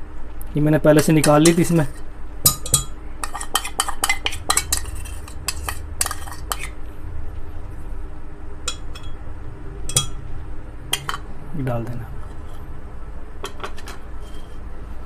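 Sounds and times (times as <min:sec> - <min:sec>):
low steady hum: 0:00.0 - 0:15.0
spoon clinking against glass jar: 0:02.5 - 0:04.9, 0:09.9 - 0:10.2.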